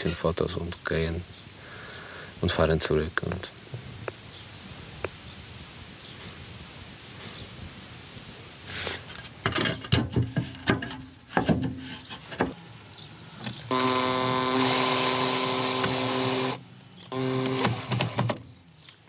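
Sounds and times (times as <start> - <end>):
cordless drill running: 13.7 - 18.4.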